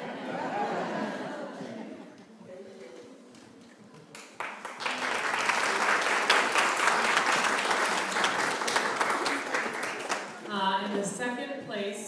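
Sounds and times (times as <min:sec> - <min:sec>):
audience applauding: 0:04.1 - 0:10.5.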